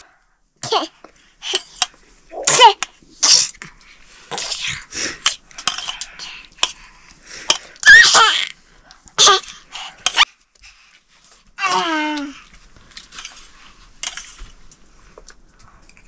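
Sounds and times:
baby squealing: 7.8s - 8.5s.

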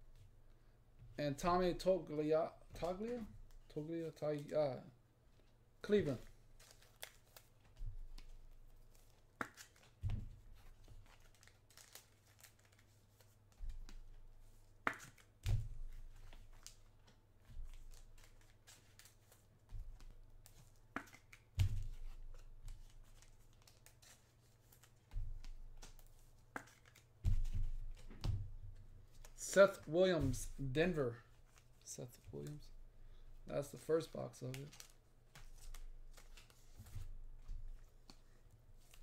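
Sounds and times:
wrappers rustling and tearing: 6.0s - 10.0s, 10.7s - 14.1s.

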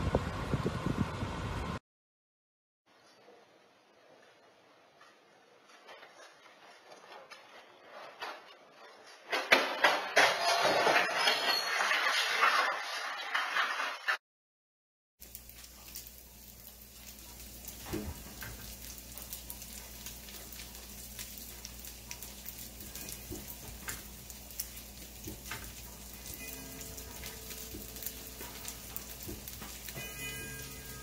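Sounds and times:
house rattling in earthquake: 5.6s - 14.2s.

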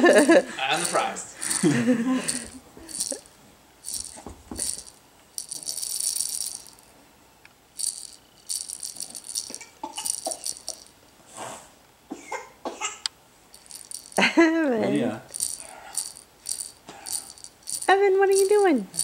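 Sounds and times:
toy rattle shaking: 0.0s - 6.8s, 7.8s - 11.0s, 13.5s - 14.4s, 15.2s - 19.0s.

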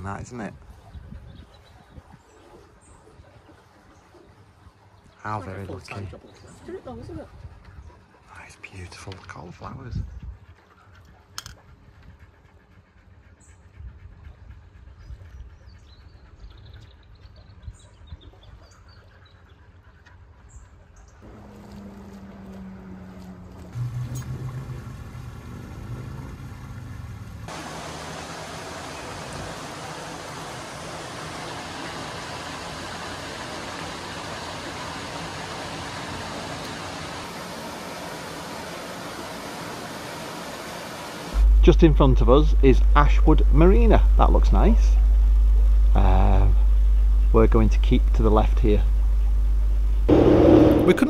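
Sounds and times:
low uneven rumble: 19.2s - 39.6s, 41.3s - 51.0s
water rushing into lock chamber: 21.2s - 44.4s, 50.1s - 51.0s.

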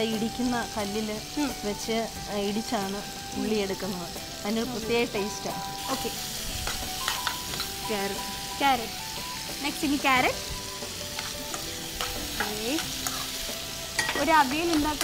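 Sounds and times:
food sizzling: 0.0s - 15.0s
spoon squealing on pan: 5.5s - 14.2s
spoon scraping metal pan: 11.0s - 15.0s.

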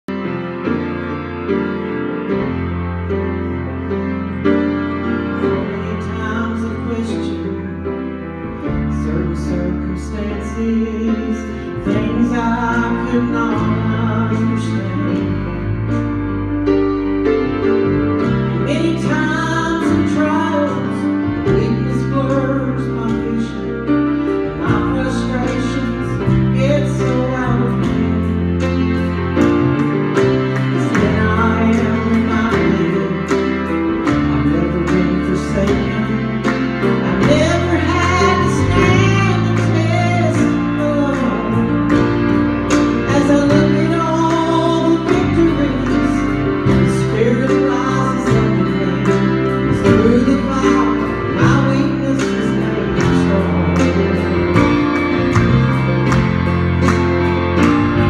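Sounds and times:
piano and bass accompaniment: 0.0s - 58.0s
woman singing gospel: 8.9s - 15.4s, 18.6s - 23.8s, 24.5s - 28.6s, 30.8s - 33.3s, 34.4s - 36.6s, 37.2s - 41.9s, 43.0s - 54.6s.

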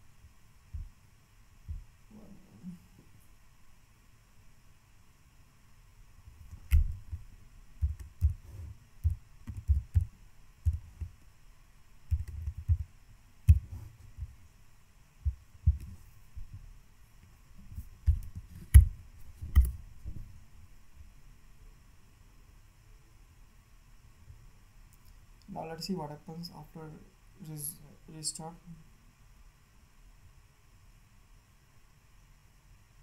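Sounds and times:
typing on a computer keyboard: 7.8s - 8.4s, 9.0s - 11.2s, 12.1s - 12.9s.

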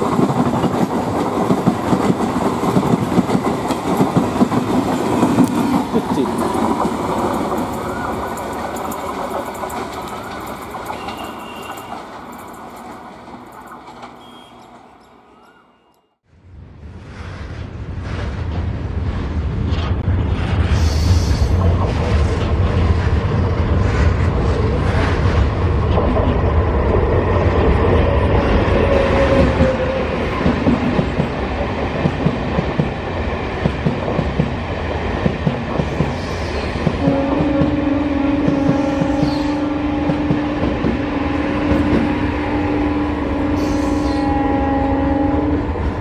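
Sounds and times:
wheels clacking over rail joints: 0.0s - 15.6s
train rumbling past: 0.0s - 46.0s.

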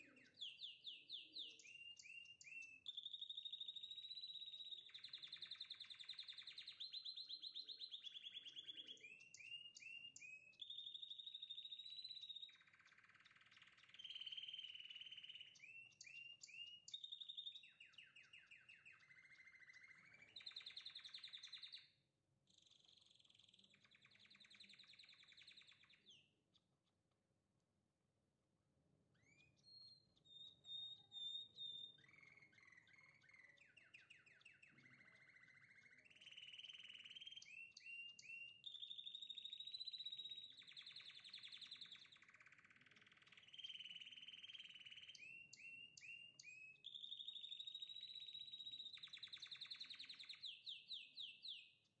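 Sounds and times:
songbird chirping and trilling: 0.0s - 27.7s, 28.3s - 52.0s.

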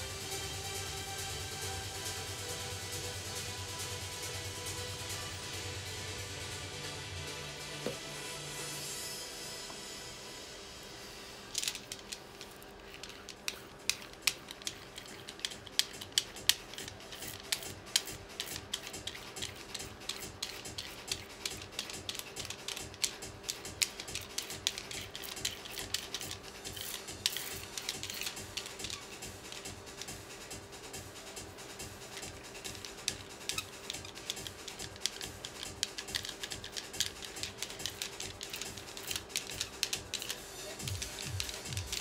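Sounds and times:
roller spreading sticky glue: 11.5s - 42.0s.

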